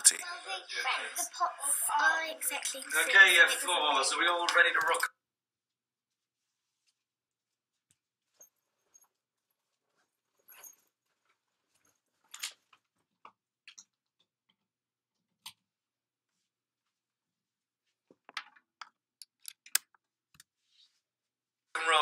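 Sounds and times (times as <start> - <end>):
faint knocks and rustles: 7.7 - 13.4.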